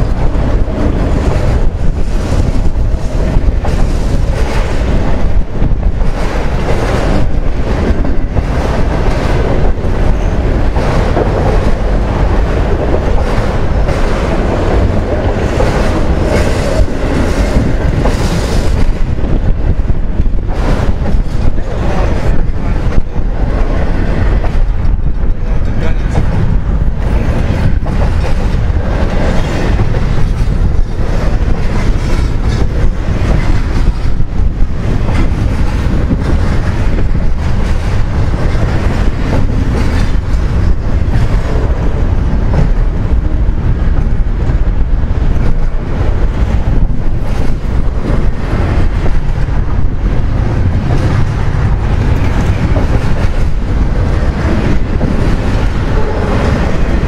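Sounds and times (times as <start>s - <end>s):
steel wheels rumbling on rail: 0.0s - 57.0s.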